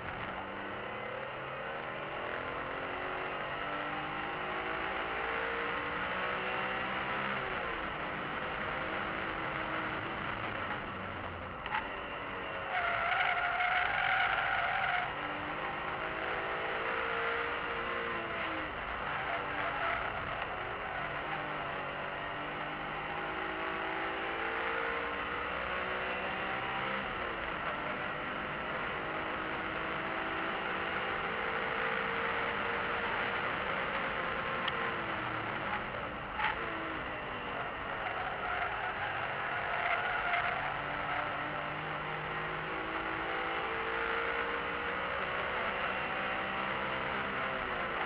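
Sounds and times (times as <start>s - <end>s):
car engine revving: 0.0s - 48.0s
tyre and road noise: 7.5s - 22.9s, 32.6s - 43.7s.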